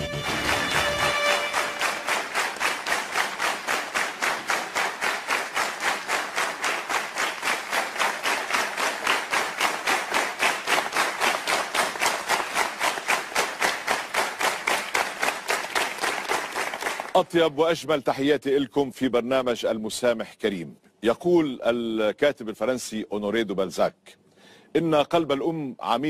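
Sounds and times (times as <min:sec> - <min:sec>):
theme tune music: 0:00.0 - 0:02.5
audience clapping in unison: 0:00.0 - 0:17.4.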